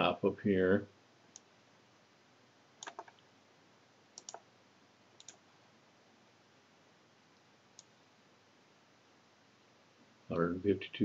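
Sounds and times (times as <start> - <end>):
faint room hiss: 0.0 - 11.0
mouse buttons clicking: 2.8 - 3.2, 4.2 - 4.5, 5.2 - 5.4.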